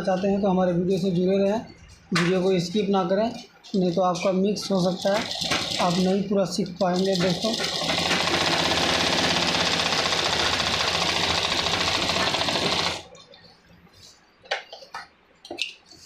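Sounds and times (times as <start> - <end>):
sewing machine stitching: 5.0 - 6.2, 7.0 - 13.1.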